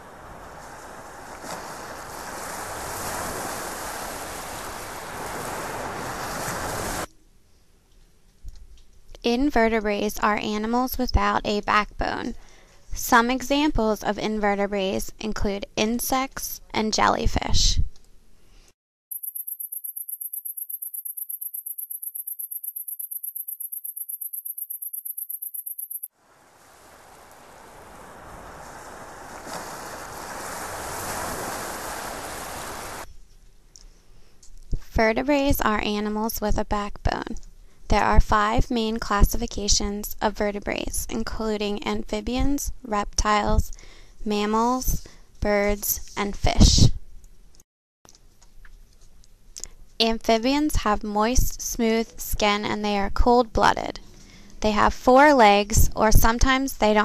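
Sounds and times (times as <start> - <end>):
ocean surf: 0.0 - 7.1, 26.2 - 33.1
cricket chirping: 19.1 - 27.8
steady rushing noise: 26.2 - 33.1.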